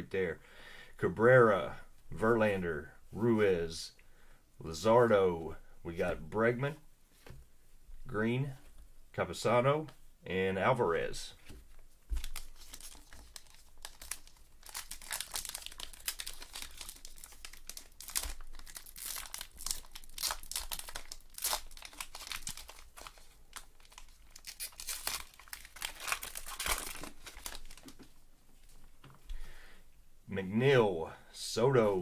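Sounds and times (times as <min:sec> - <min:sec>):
cards rustling: 0:11.4 - 0:29.3
card pack wrapper tearing and crinkling: 0:12.1 - 0:28.1.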